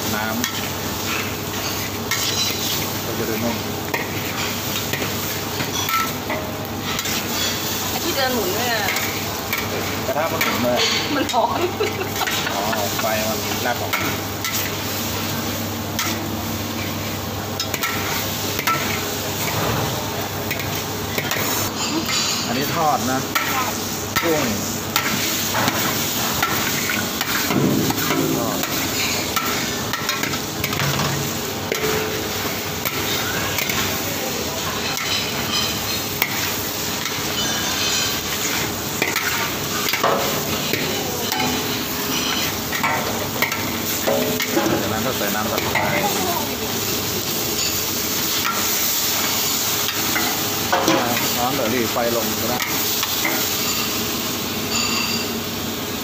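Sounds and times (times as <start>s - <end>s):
food sizzling: 0.0s - 56.0s
metal spatula scraping wok: 12.2s - 46.6s, 54.7s - 55.4s
metal spatula scraping a wok: 34.6s - 44.6s, 54.7s - 55.4s
metal knocking on wok: 44.0s - 44.8s.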